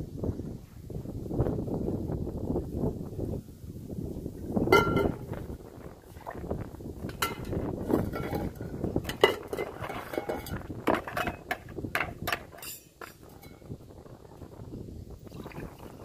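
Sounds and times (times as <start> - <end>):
steel tumblers clinking: 4.7 - 5.3, 7.1 - 13.8.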